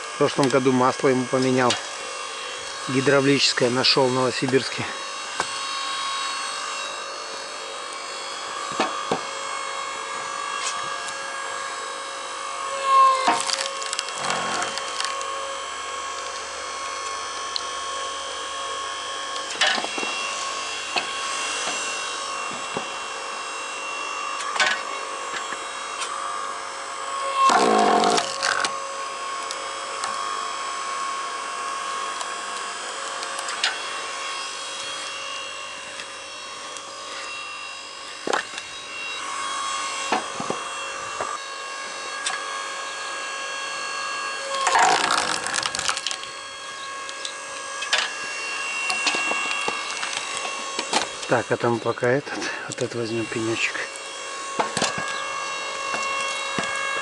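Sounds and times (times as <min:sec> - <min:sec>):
log splitter humming: 0:00.0 - 0:57.0
wood creaking and cracking: 0:13.1 - 0:15.3, 0:27.5 - 0:28.7, 0:44.5 - 0:46.3.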